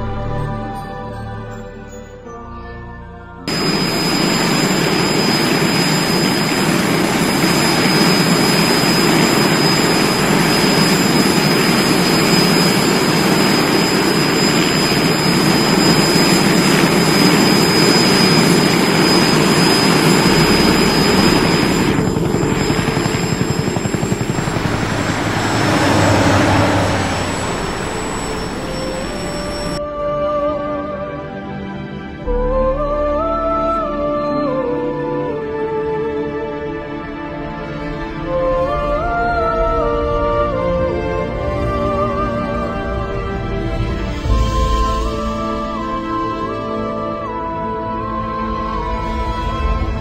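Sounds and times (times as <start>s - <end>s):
helicopter engine and rotor: 3.5s - 29.8s.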